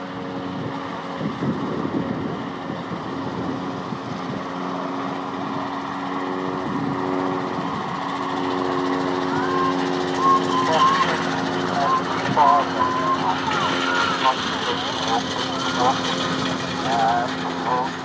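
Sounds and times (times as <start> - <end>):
small engine humming: 0.0 - 18.0.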